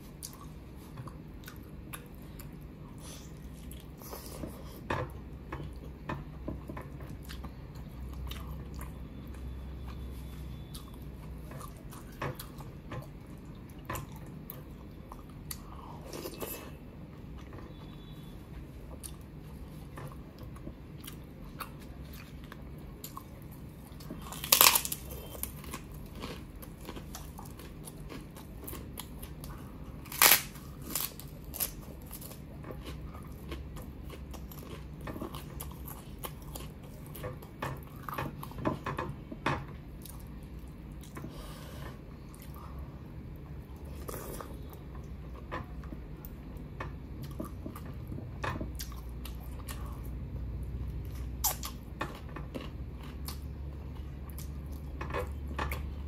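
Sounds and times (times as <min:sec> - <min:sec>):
chewing: 0:00.1 - 0:06.0, 0:06.7 - 0:18.2, 0:18.9 - 0:38.6, 0:42.2 - 0:56.0
loud crunches of biting: 0:24.3 - 0:27.3, 0:30.0 - 0:31.9.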